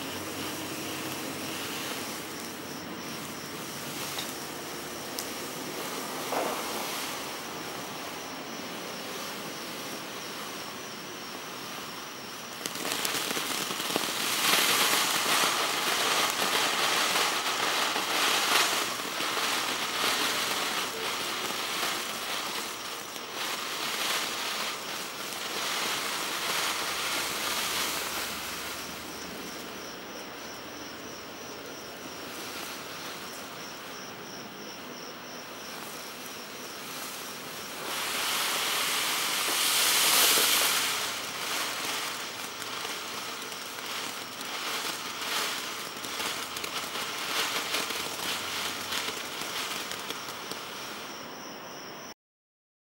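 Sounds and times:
fountain firework hissing: 0.0 - 34.0, 35.4 - 51.3
crickets chirping: 0.0 - 52.2.

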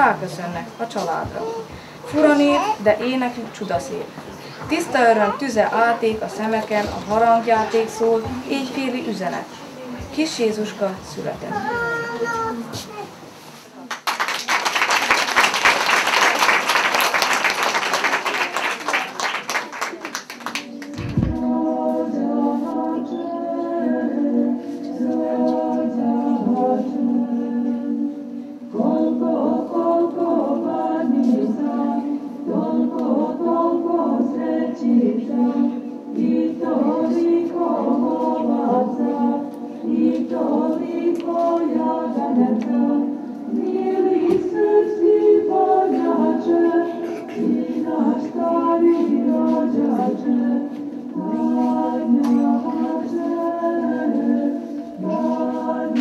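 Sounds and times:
audience applause: 13.8 - 21.1
children singing together: 20.5 - 56.0.

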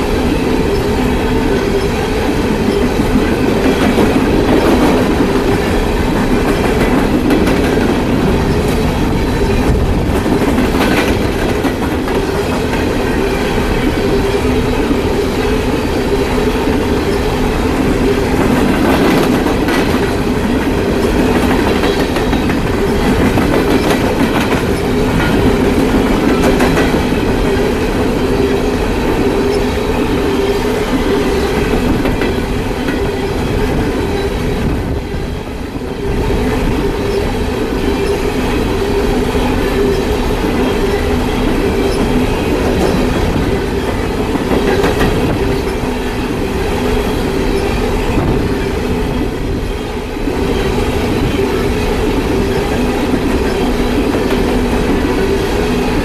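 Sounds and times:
freight train rumbling past: 0.0 - 56.0
wheels clicking over rail joints: 1.5 - 14.2, 16.5 - 34.3.

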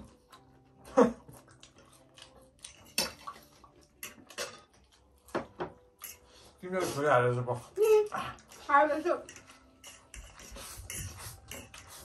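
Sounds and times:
forks clinking on plates: 2.2 - 6.6, 8.4 - 12.0.

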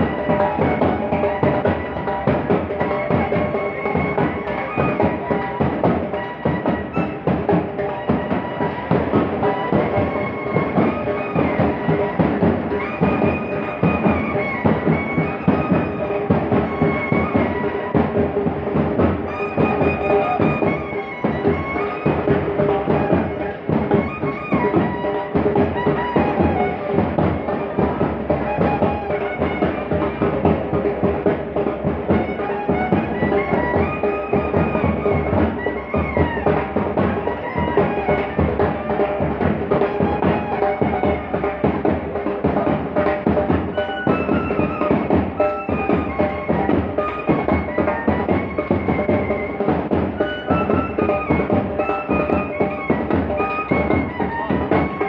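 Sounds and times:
bass drums and snare drums beating: 0.0 - 55.0
marching band playing: 0.0 - 55.0
wind instruments sustained notes: 19.2 - 30.2.

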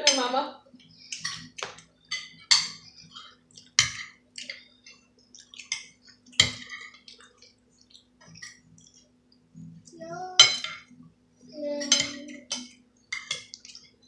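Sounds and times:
faint steady hum: 0.0 - 14.0
cutlery clinking on plates: 1.1 - 7.6, 11.8 - 14.0.

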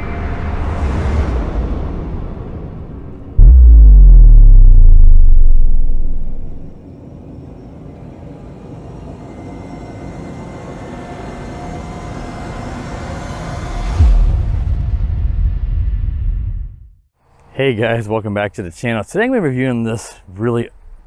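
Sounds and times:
building swell effect: 3.4 - 6.7
deep boom: 3.4 - 6.7.

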